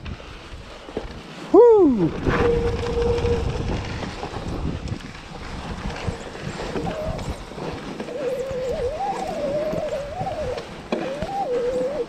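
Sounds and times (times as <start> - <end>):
bike rattling over bumps: 0.0 - 12.0
brake squeal: 6.0 - 12.0.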